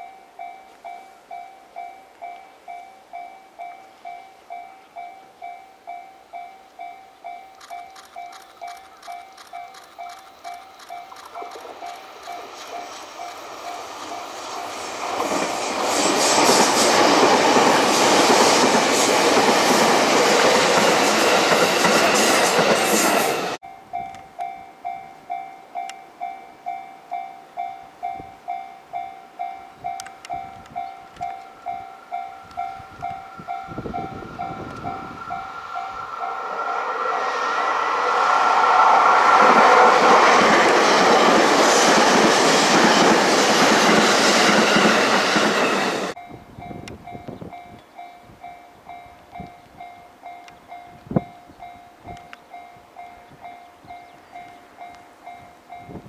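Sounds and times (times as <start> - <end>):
level-crossing bell dinging: 0.0 - 14.8, 23.6 - 37.3, 44.5 - 56.0
train passing on rails: 0.0 - 56.0.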